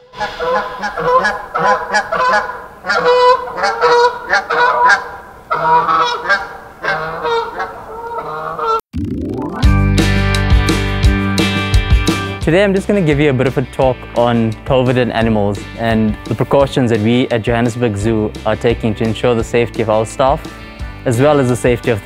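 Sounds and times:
flamingos honking: 0.0 - 8.8.

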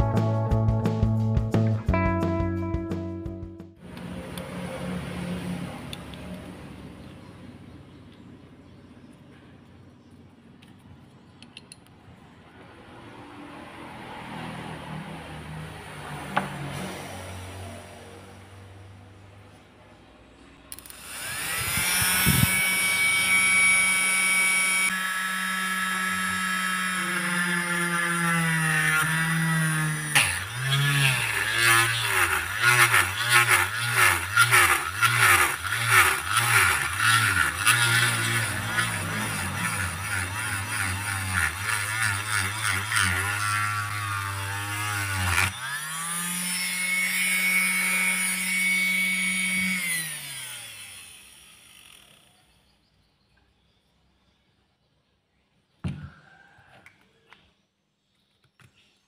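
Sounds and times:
hole saw cutting plastic pipe: 20.7 - 52.2
small motor whine: 20.7 - 52.7.

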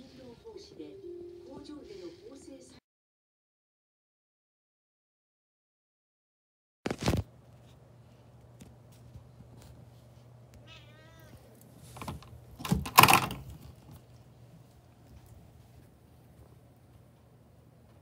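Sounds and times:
cat meowing: 10.6 - 11.5
door rattling open: 12.0 - 13.5.

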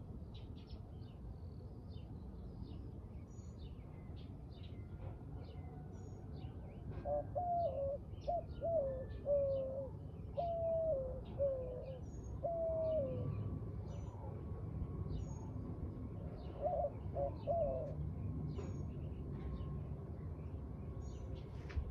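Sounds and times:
dove cooing: 6.9 - 14.4, 16.5 - 18.0.

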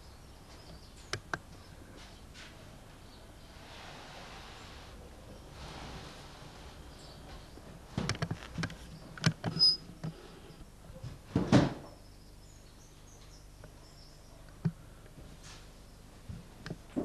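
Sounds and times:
handling knocks and clicks: 8.0 - 10.2.

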